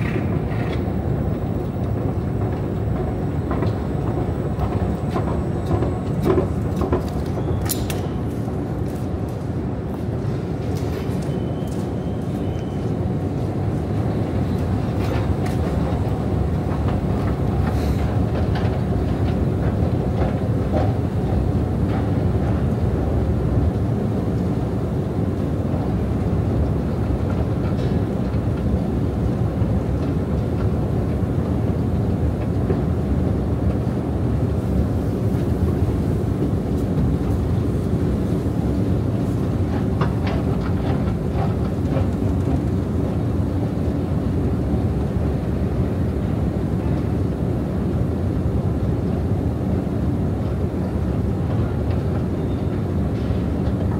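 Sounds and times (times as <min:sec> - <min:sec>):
escalator rumbling: 0:00.0 - 0:08.7.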